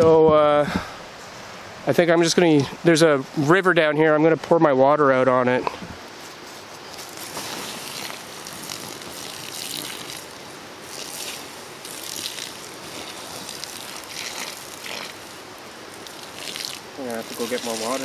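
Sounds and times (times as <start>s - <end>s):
water hissing on hot coals: 6.2s - 18.0s.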